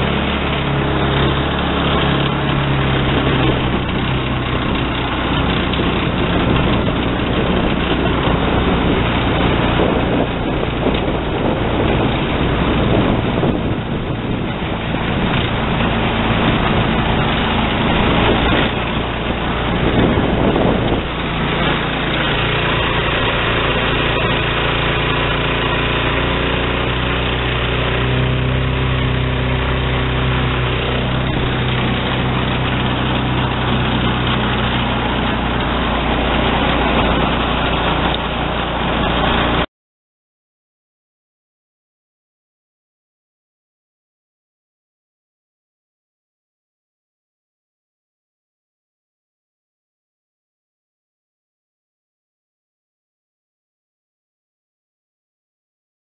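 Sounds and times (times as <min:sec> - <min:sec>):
wind on microphone: 0:00.0 - 0:39.6
boat engine droning: 0:00.0 - 0:39.7.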